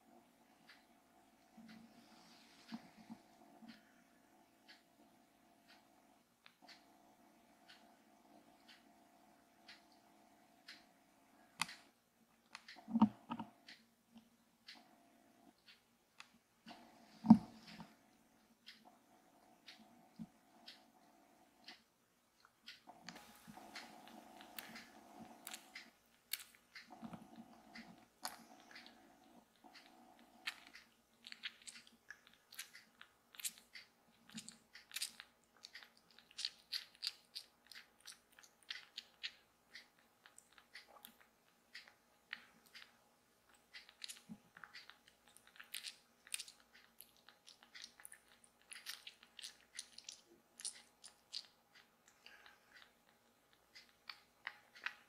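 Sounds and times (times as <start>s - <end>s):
kitten suckling from bottle: 23.1s - 55.0s.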